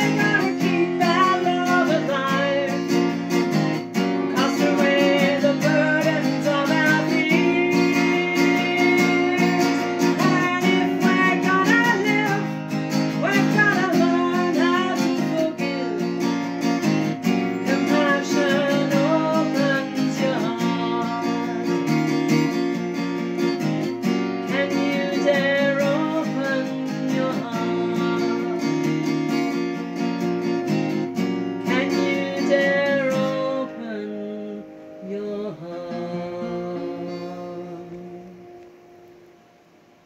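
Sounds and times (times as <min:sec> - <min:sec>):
woman singing: 0:00.0 - 0:22.2, 0:24.4 - 0:29.6, 0:31.6 - 0:38.6
acoustic guitar strumming: 0:00.0 - 0:40.0.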